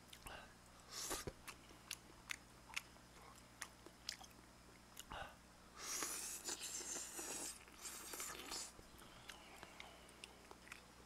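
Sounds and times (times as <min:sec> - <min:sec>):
wet chewing smacks: 0:01.1 - 0:05.1
slurping noodles: 0:05.8 - 0:08.7.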